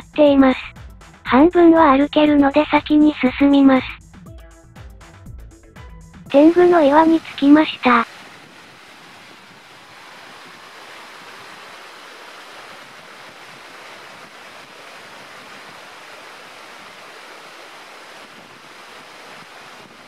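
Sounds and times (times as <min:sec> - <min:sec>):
stream running over rocks: 0:06.4 - 0:20.0.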